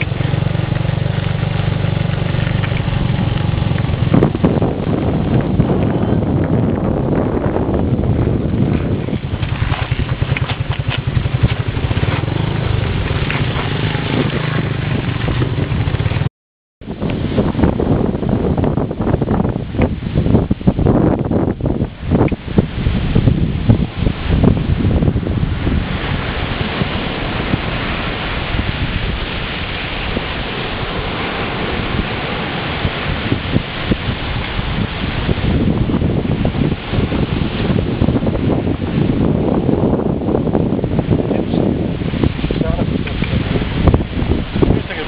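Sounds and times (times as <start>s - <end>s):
small motorbike engine running: 0.0s - 6.2s, 8.5s - 16.3s
wind rumble on microphone: 0.0s - 45.0s
small waves breaking on beach: 22.4s - 45.0s.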